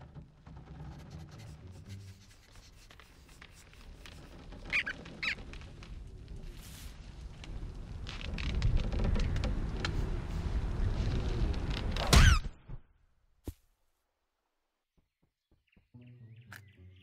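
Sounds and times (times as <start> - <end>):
cartoon squirrel squeaks: 4.7 - 5.4.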